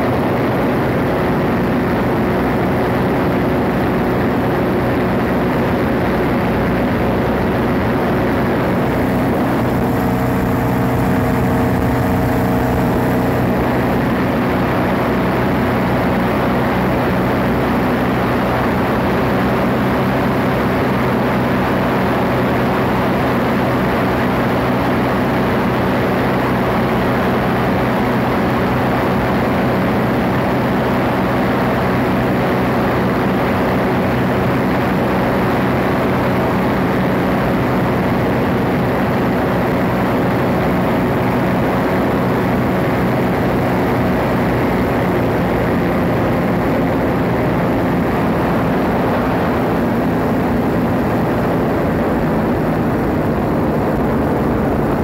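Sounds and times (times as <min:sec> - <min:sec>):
rushing air: 0:00.0 - 0:19.1
ultralight aircraft engine and propeller: 0:00.0 - 0:55.0.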